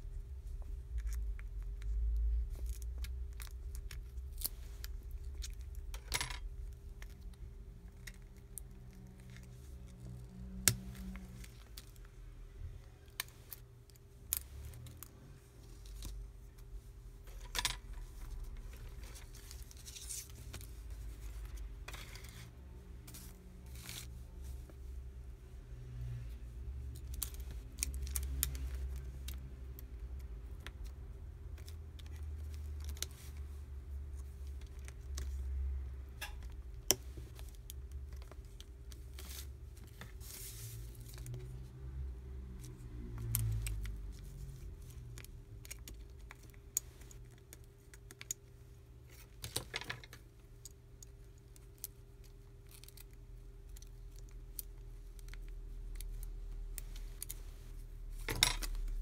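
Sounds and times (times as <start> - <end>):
low steady hum: 0.0 - 59.0.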